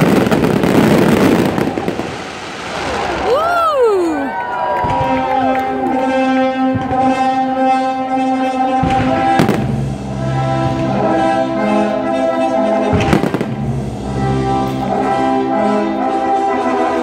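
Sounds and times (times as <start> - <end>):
firework bang: 0.0 - 3.9, 8.8 - 11.0, 12.9 - 14.1
orchestral music with brass chords: 4.8 - 17.0.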